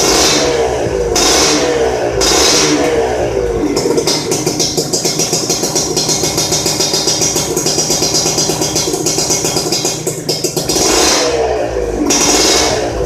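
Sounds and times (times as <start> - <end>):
motorcycle engine idling: 0.0 - 13.0
rattle: 3.6 - 11.0.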